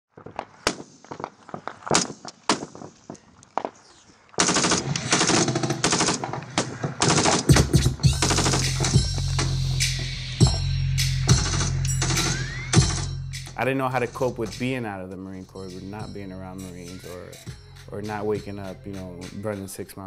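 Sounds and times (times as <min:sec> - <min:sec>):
automatic gunfire bursts: 0:04.4 - 0:06.4
deep music beat: 0:07.5 - 0:20.0.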